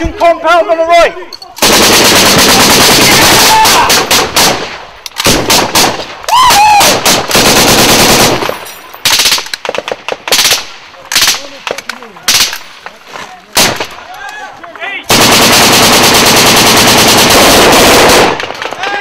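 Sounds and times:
automatic gunfire: 1.6s - 6.2s, 6.8s - 11.7s, 12.3s - 12.5s, 13.6s - 14.0s, 15.0s - 19.0s
single gunshots: 13.6s - 14.0s.

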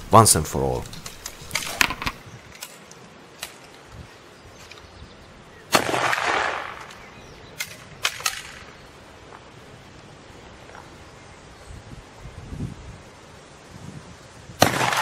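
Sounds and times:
metallic rifle clicks: 0.8s - 3.8s, 7.6s - 8.6s
rifle shot with echo: 5.7s - 7.0s, 14.6s - 15.0s.

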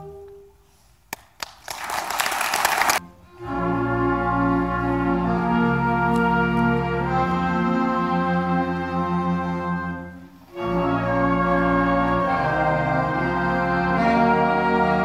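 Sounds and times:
single claps: 1.1s - 3.0s
audience applause: 1.4s - 3.0s.

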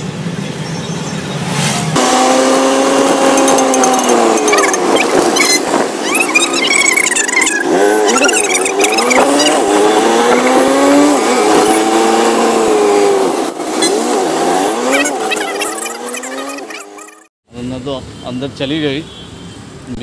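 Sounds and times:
road noise: 0.0s - 20.0s
small engine revving: 1.5s - 17.3s.

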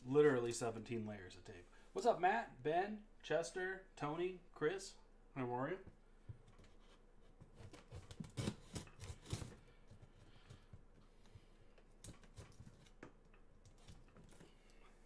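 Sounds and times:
knife scraping packing tape: 6.7s - 9.6s, 12.0s - 13.0s.

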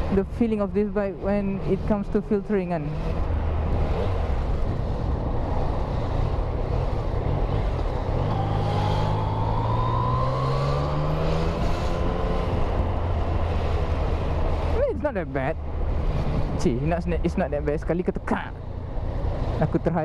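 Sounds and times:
wind and road noise: 0.0s - 20.0s
motorcycle engine accelerating: 2.8s - 16.6s.

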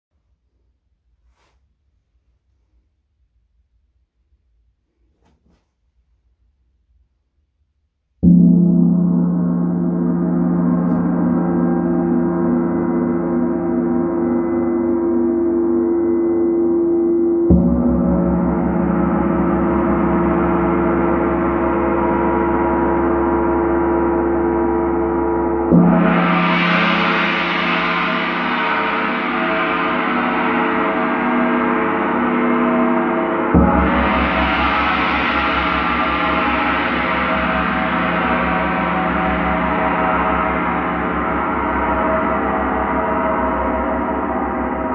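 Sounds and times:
gong struck with mallet: 25.6s - 44.9s.

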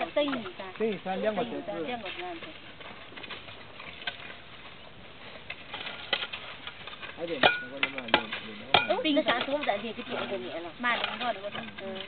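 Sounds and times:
voices talking: 0.0s - 2.8s
hoes scraping dry dirt: 0.0s - 12.0s.

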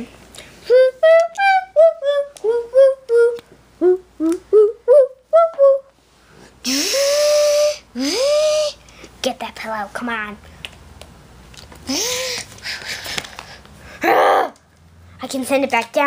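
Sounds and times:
child making whirring mouth sounds: 0.0s - 5.9s, 6.6s - 8.8s, 11.8s - 13.1s, 14.0s - 14.7s
child humming: 0.6s - 5.9s, 6.6s - 8.8s, 11.9s - 12.5s, 14.0s - 14.6s.

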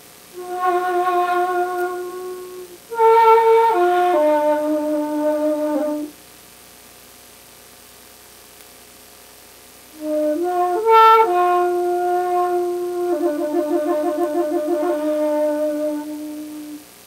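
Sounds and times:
end-blown flute playing held notes: 0.4s - 6.1s, 10.0s - 16.8s.

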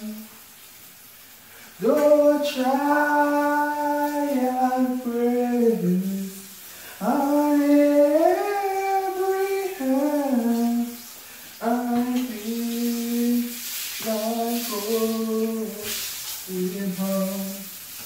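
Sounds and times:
man singing unaccompanied: 0.0s - 0.3s, 1.8s - 17.8s.

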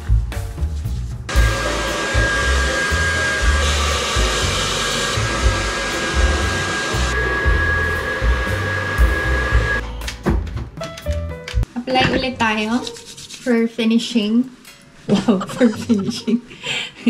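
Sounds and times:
hair dryer blowing: 1.3s - 9.8s.

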